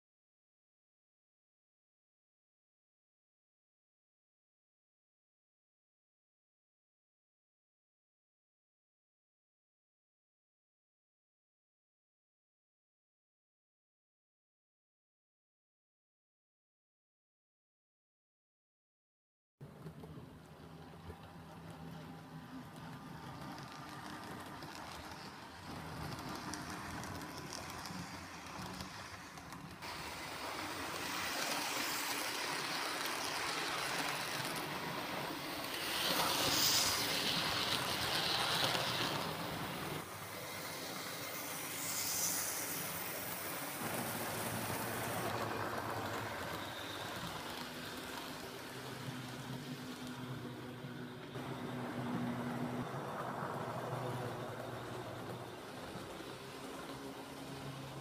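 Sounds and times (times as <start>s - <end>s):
wheels on rails: 19.6s - 58.0s
model train motors whirring: 19.7s - 58.0s.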